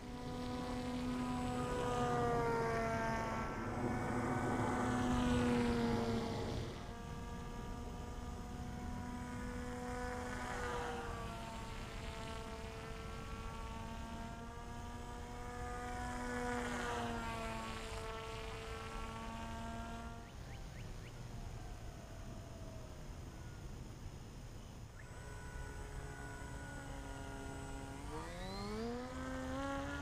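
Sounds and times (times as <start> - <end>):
model plane motor whine: 0.0 - 30.0.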